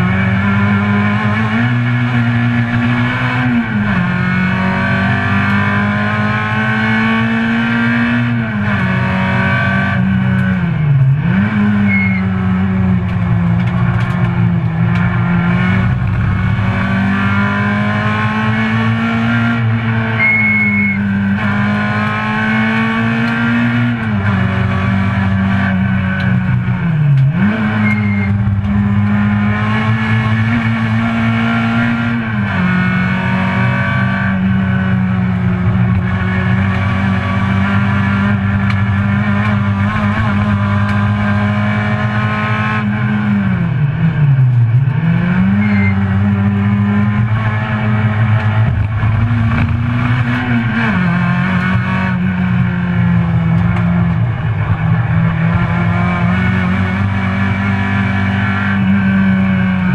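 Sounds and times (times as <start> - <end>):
car engine at high revs: 0.0 - 59.9.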